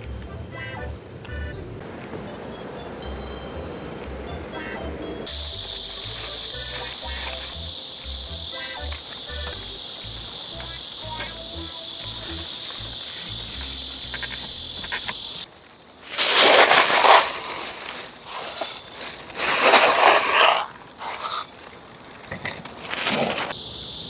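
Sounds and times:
high insect chorus: 0:00.0 - 0:24.0
plastic bag rustling: 0:16.0 - 0:21.9.

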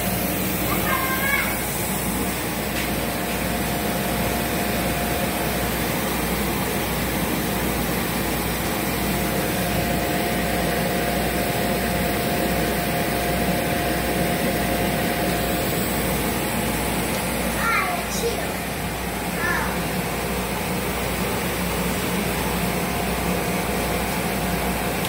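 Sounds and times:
machine whir: 0:00.0 - 0:25.0
thin steady whine: 0:00.0 - 0:25.0.

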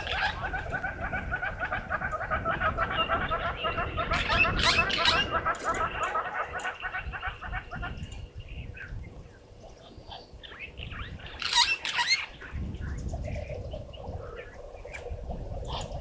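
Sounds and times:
wild dogs twittering: 0:00.0 - 0:09.0, 0:10.0 - 0:12.6
wind rumble on microphone: 0:00.0 - 0:16.0.

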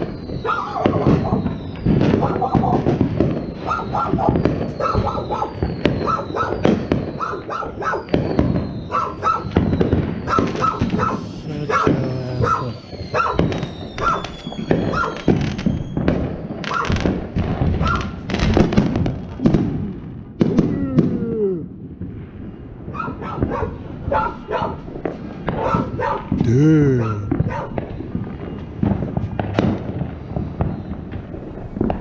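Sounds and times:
falling firework whistles: 0:00.0 - 0:21.2, 0:27.8 - 0:32.0
fireworks bangs and crackles: 0:00.0 - 0:32.0
dog barking: 0:00.4 - 0:01.4, 0:02.2 - 0:02.8, 0:03.6 - 0:06.6, 0:07.2 - 0:08.1, 0:08.9 - 0:09.5, 0:10.3 - 0:14.3, 0:14.9 - 0:15.2, 0:16.7 - 0:17.0, 0:17.8 - 0:18.1, 0:22.9 - 0:24.8, 0:25.5 - 0:26.3, 0:27.3 - 0:27.8.

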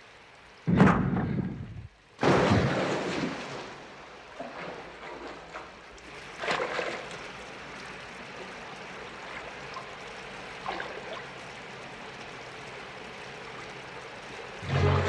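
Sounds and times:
running water: 0:00.0 - 0:15.0
water splash: 0:02.2 - 0:07.4, 0:10.6 - 0:11.3, 0:14.6 - 0:15.0.

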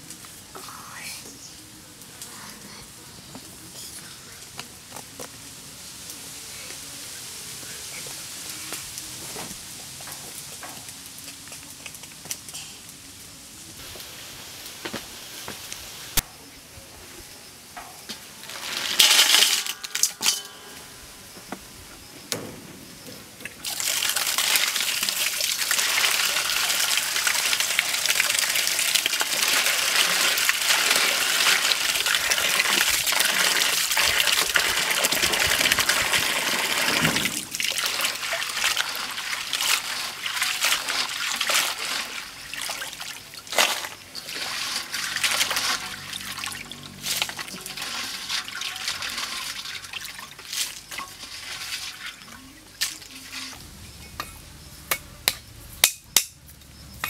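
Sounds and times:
crabs clattering into steel bowl: 0:17.8 - 0:21.0, 0:23.6 - 0:53.1
water pouring into bowl: 0:23.6 - 0:52.4.

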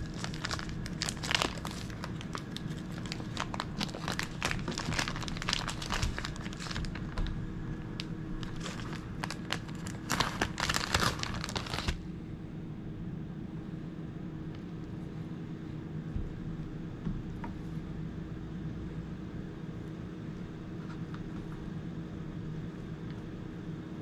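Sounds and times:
bacon crinkling and rustling: 0:00.0 - 0:12.0
steady low hum: 0:00.0 - 0:24.0.

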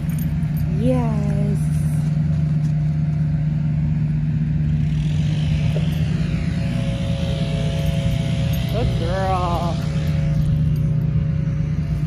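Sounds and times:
low hum: 0:00.0 - 0:12.0
low rumble: 0:00.0 - 0:12.0.

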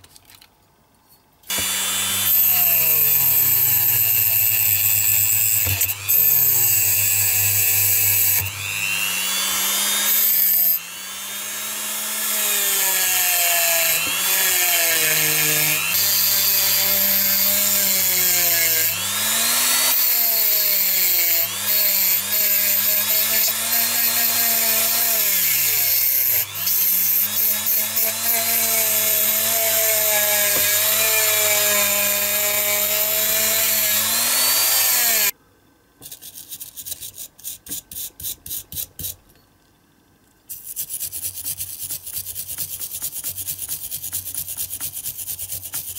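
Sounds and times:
rotary tool motor whine: 0:01.5 - 0:13.3.

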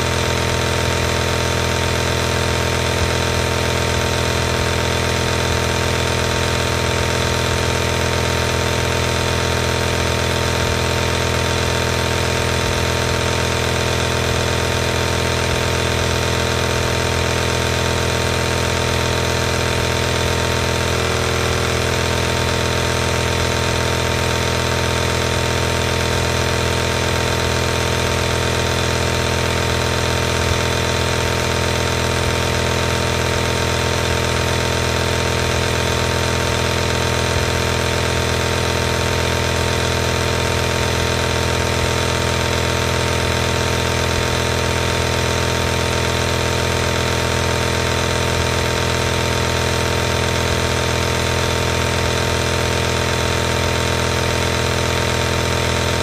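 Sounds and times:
nebulizer compressor humming: 0:14.1 - 0:39.4.

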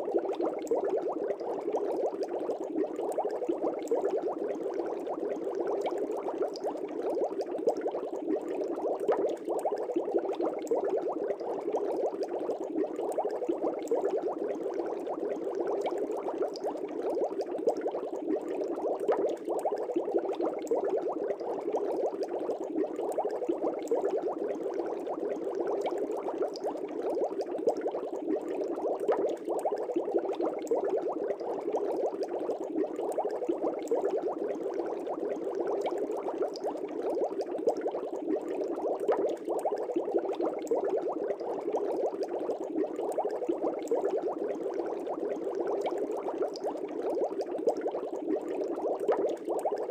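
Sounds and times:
air bubbles gurgling in water: 0:00.0 - 0:49.9.

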